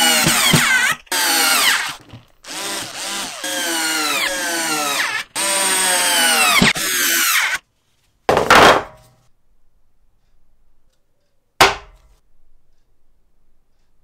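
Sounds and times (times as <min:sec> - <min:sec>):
power drill driving screws: 0:00.0 - 0:07.6.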